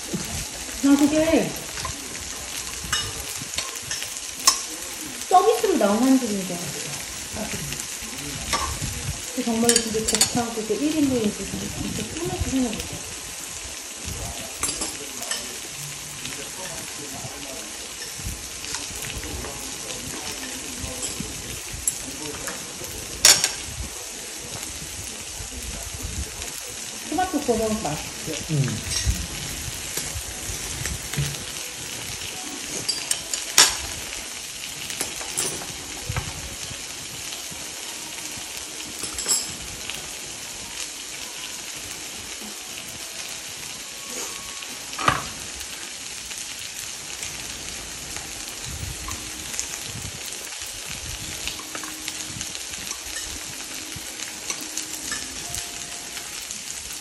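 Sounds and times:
food sizzling in a frying pan: 0:00.0 - 0:57.0
chopsticks and tongs clicking on pan: 0:02.7 - 0:05.2, 0:08.5 - 0:08.9, 0:09.6 - 0:11.4, 0:21.8 - 0:23.7, 0:30.9 - 0:34.0, 0:38.9 - 0:39.6, 0:51.5 - 0:52.2.

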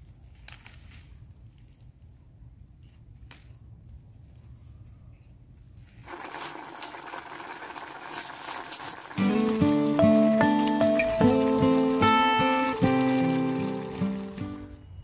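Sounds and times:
soup bubbling and hissing: 0:06.1 - 0:14.7.

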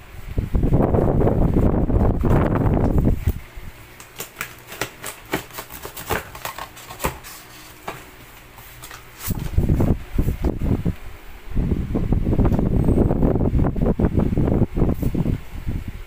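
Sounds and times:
cardboard clicks and crackles: 0:02.2 - 0:09.6
cardboard rubbing scrape: 0:04.1 - 0:10.4.

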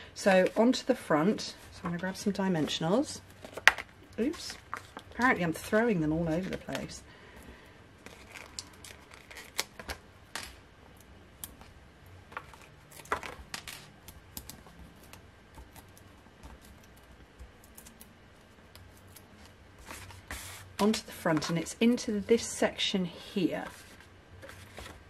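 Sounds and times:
paper rustling: 0:19.4 - 0:21.7, 0:23.6 - 0:25.0.

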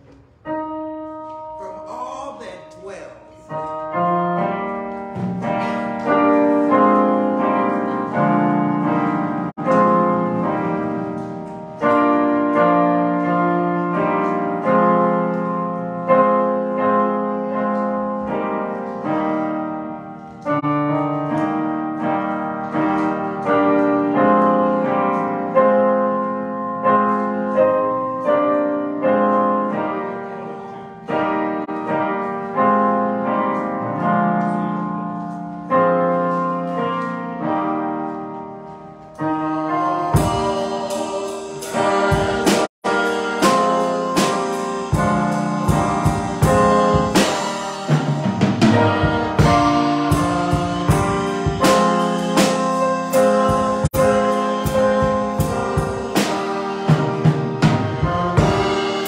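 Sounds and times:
slow piano chords: 0:00.0 - 0:59.0.

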